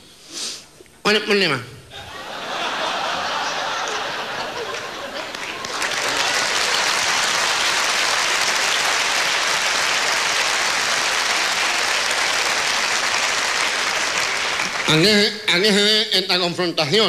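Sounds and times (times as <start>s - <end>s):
audience applauding: 2.4s - 15.3s.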